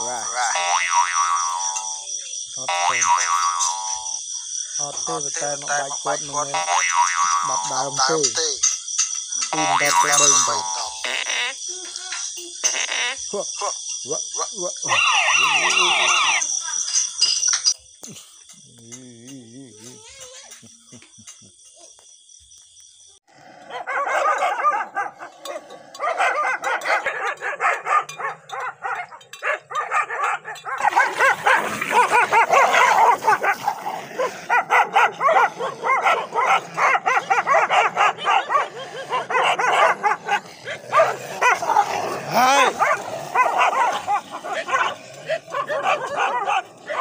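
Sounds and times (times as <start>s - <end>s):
dogs barking and yipping: 0.0s - 2.2s, 6.5s - 11.2s, 14.8s - 17.8s, 23.4s - 47.0s
dog yelping: 14.9s - 16.8s, 23.7s - 47.0s.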